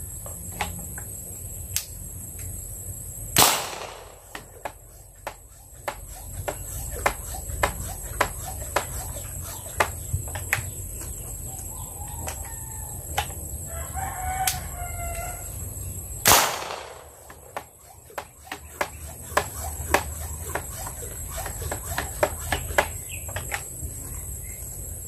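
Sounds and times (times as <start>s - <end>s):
marble gun firing crack: 3.4s - 4.6s, 16.2s - 17.6s
rooster crowing: 11.5s - 15.6s.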